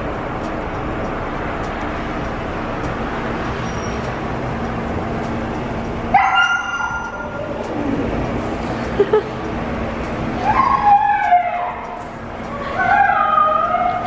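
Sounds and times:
dog yelping: 6.2s - 7.5s, 10.4s - 11.8s.

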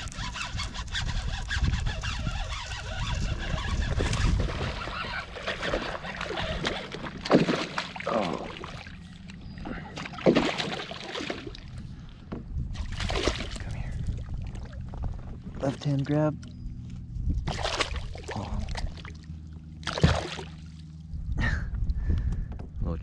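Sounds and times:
water sloshing beside boat: 0.0s - 22.8s
fish splashing: 3.1s - 11.8s, 12.8s - 13.6s, 17.5s - 21.0s.

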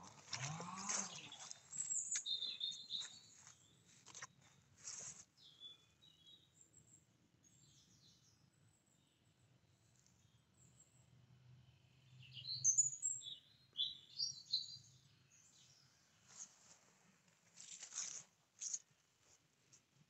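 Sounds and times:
birds chirping: 0.0s - 4.6s.

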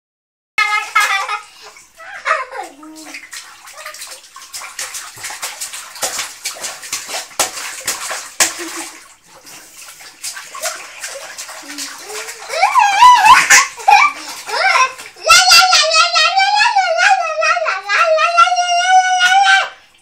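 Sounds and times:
child's voice: 0.6s - 3.2s, 11.7s - 19.8s
baby splashing water: 0.6s - 17.3s.

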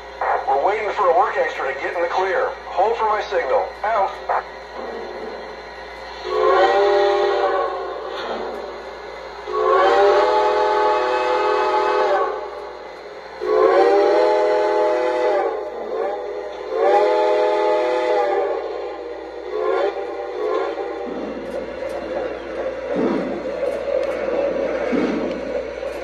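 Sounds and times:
model train running noise: 0.0s - 26.0s
model steam whistle blasts: 6.2s - 8.1s, 9.4s - 12.7s, 13.4s - 21.1s.

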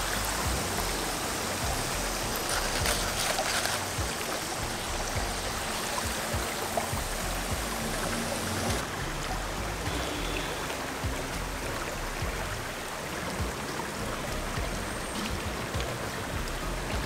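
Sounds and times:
river rushing water: 0.0s - 17.0s.

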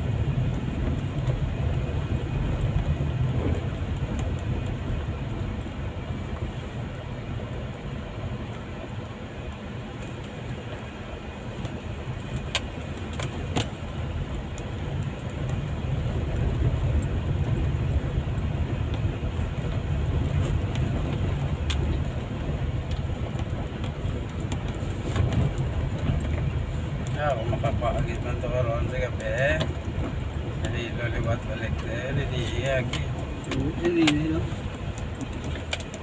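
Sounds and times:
car driving on gravel road: 0.0s - 36.0s
sharp clicks and rattles: 22.8s - 36.0s.

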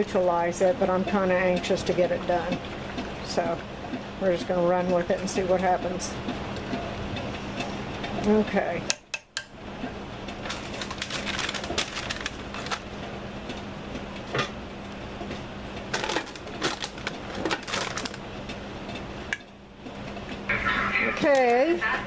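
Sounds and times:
paper crinkling and crackling: 10.5s - 12.9s, 15.9s - 18.2s.

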